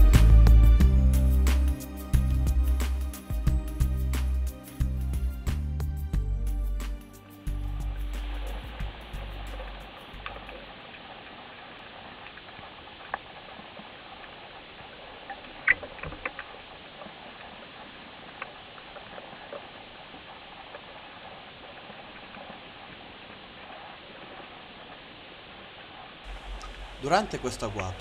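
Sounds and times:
underwater hiss: 7.4s - 10.2s
underwater clicks and crackles: 7.7s - 27.0s.

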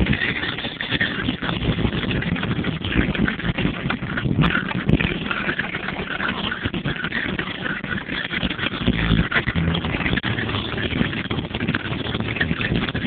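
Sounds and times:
car engine idling: 8.9s - 13.0s.

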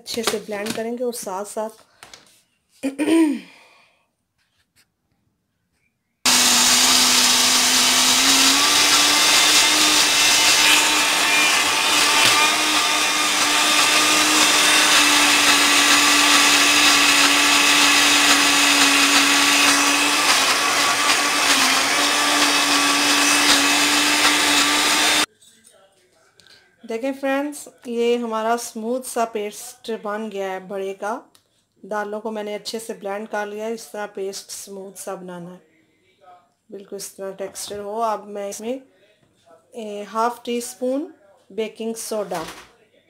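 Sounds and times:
blender running: 6.3s - 25.3s.

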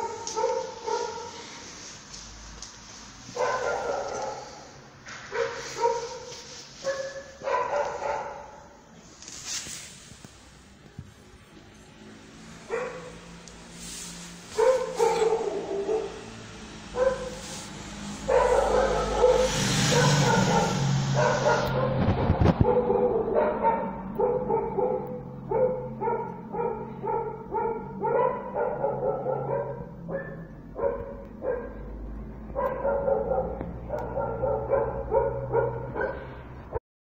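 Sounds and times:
dog barking: 0.0s - 1.4s, 3.4s - 8.8s, 12.7s - 13.3s, 14.6s - 31.9s, 32.5s - 36.4s
rushing noise: 12.0s - 24.2s.

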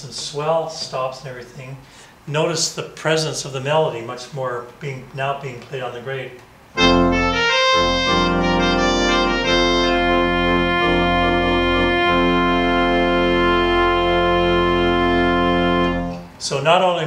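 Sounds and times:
organ playing sustained chords: 6.8s - 16.4s.

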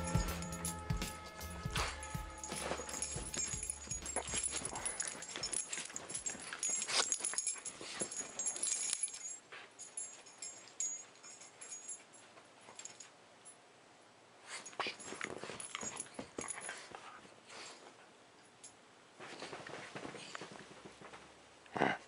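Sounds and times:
dog sniffing and snuffling: 1.8s - 8.9s, 14.4s - 18.1s, 19.2s - 21.2s.

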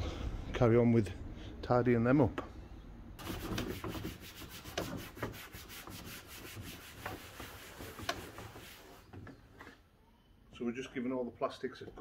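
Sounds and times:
scouring pad scrubbing plastic: 3.2s - 9.1s.

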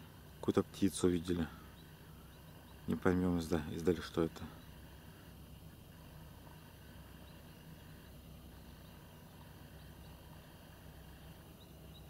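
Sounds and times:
distant tug engine drone: 0.0s - 12.0s.

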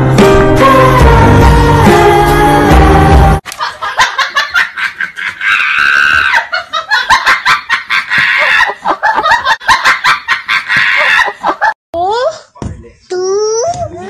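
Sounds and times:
person laughing hard: 3.5s - 11.8s
high-pitched shriek of laughter: 5.4s - 6.6s.

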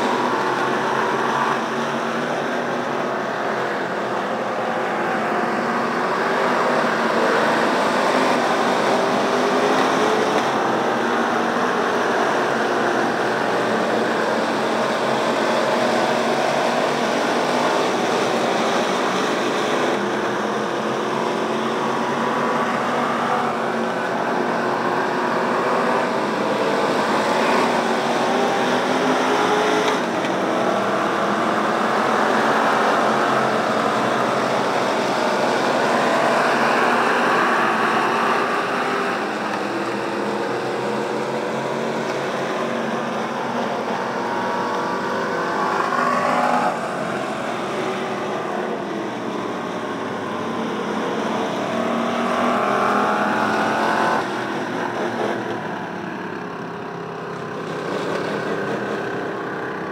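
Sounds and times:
race car engines accelerating: 0.0s - 59.9s.

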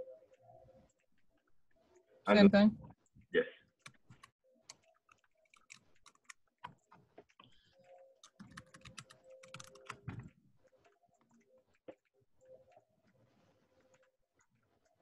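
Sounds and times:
typing on keyboard: 3.8s - 12.8s.

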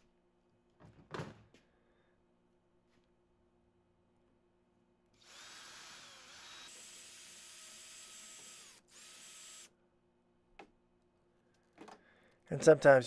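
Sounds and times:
cordless drill drilling metal: 5.2s - 9.7s.

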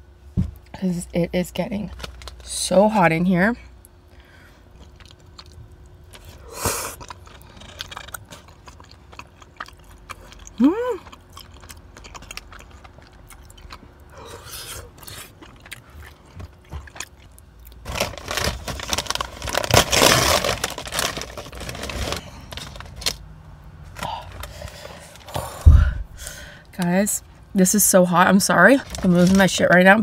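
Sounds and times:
mouth-closed chewing: 4.7s - 17.8s
plastic bag rustling: 17.8s - 23.2s, 28.7s - 30.0s.

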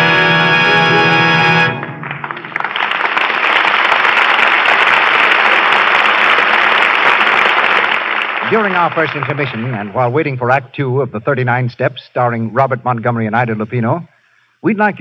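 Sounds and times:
orchestral brass chord: 0.0s - 2.4s
audience applauding: 0.7s - 10.2s.

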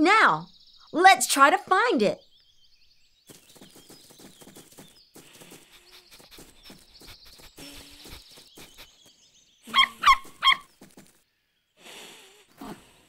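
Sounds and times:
soft sniffing ticks: 3.6s - 10.6s
cartoon animal calls: 9.7s - 10.7s.

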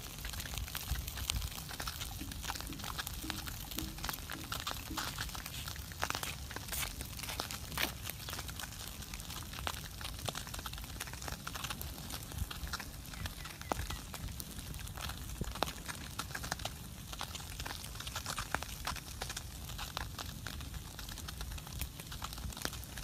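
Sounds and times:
wood fire crackling: 0.0s - 23.0s
low steady rumble: 1.2s - 5.5s.

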